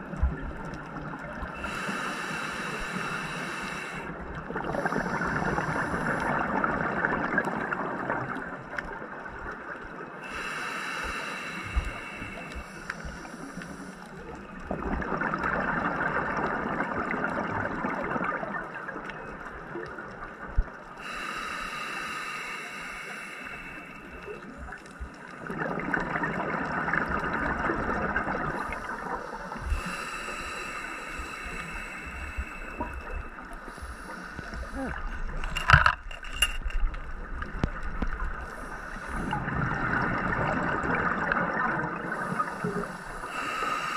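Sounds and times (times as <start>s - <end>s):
regulator bubbles gurgling: 0.0s - 10.3s, 11.8s - 21.2s, 24.2s - 43.9s
regulator inhale hiss: 1.5s - 6.5s, 10.2s - 14.4s, 21.0s - 25.3s, 28.5s - 35.5s, 38.4s - 39.4s, 42.0s - 43.9s.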